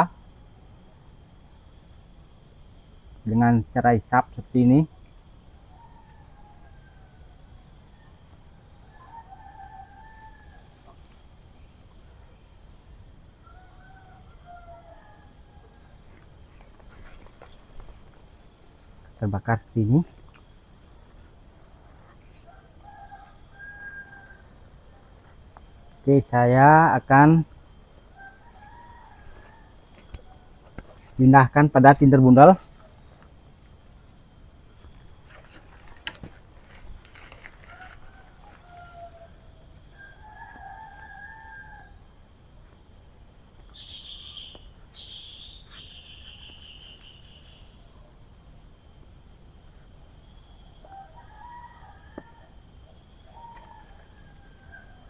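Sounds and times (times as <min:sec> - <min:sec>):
crickets and insects droning: 0:00.0 - 0:55.0
faint rooster crowing: 0:05.6 - 0:11.2, 0:13.0 - 0:18.3, 0:21.6 - 0:33.1, 0:35.1 - 0:42.6, 0:50.4 - 0:55.0
dry leaves crackling: 0:35.2 - 0:38.9.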